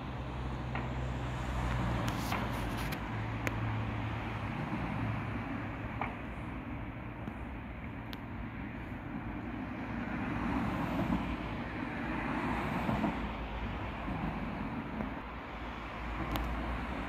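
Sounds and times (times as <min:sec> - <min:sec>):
cars passing on road: 0:00.0 - 0:17.0.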